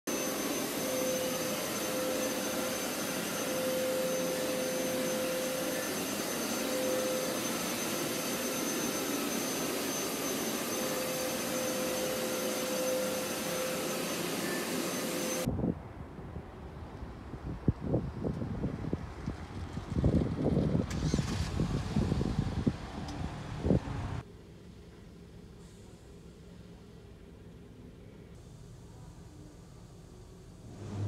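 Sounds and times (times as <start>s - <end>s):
carpet cleaning machine running: 0.1s - 15.5s, 30.6s - 31.0s
faint wind on microphone: 15.5s - 24.2s.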